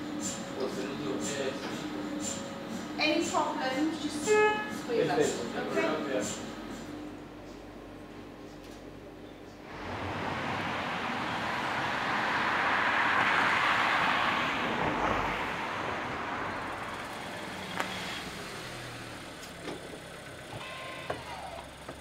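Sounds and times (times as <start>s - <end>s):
road vehicle passing by: 9.6s - 20.5s.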